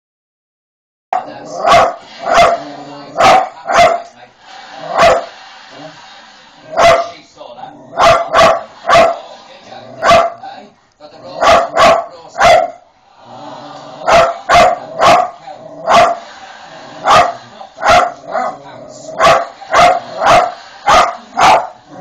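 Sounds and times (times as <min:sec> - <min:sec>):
dog barking: 0:01.2 - 0:04.1, 0:04.9 - 0:05.3, 0:06.7 - 0:07.2, 0:07.9 - 0:09.2, 0:10.0 - 0:10.4, 0:11.4 - 0:12.8, 0:14.0 - 0:16.2, 0:17.0 - 0:18.6, 0:19.2 - 0:21.8.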